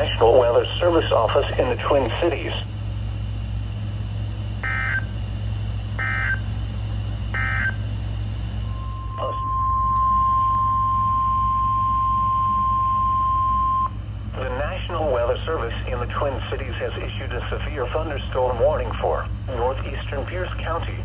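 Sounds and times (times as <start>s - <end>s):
steady alarm tone: 3.6s - 14.2s.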